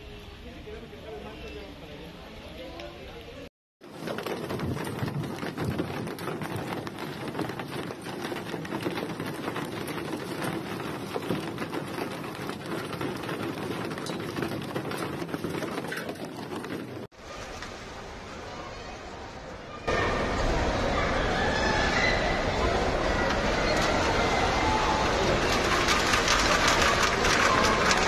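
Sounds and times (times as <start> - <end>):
hail and rain pelting: 3.8 - 17.1, 23.3 - 28.0.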